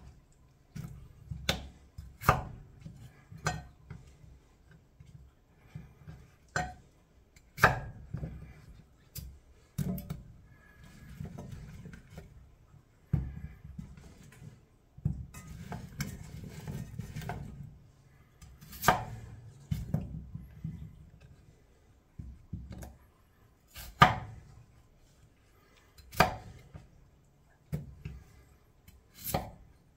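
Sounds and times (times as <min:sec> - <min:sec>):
knife chopping on cutting board: 0:00.8 - 0:02.6, 0:07.6 - 0:08.3, 0:18.6 - 0:20.0, 0:23.7 - 0:24.4, 0:26.1 - 0:26.7, 0:29.1 - 0:29.6.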